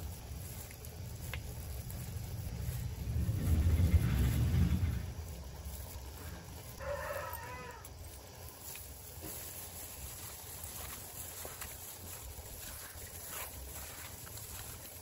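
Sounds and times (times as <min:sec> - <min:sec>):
low rumbling noise: 0:00.0 - 0:06.8.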